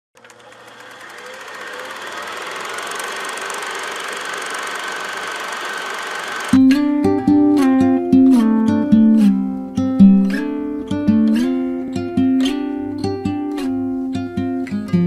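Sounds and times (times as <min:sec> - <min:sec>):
film projector clattering: 0:00.2 - 0:06.6.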